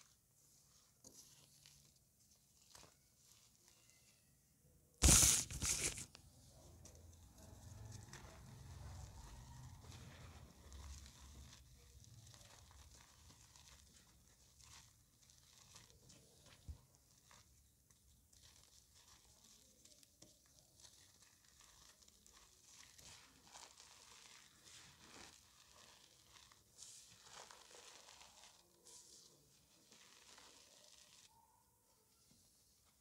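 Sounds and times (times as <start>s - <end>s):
chalk crunching in hands: 5.0s - 6.1s, 7.8s - 31.3s.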